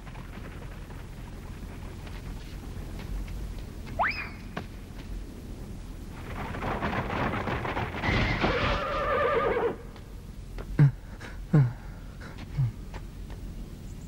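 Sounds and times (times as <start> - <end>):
hooves clattering: 0.0 - 10.8
horse whinnying: 8.0 - 9.9
short low grunts: 10.6 - 13.0.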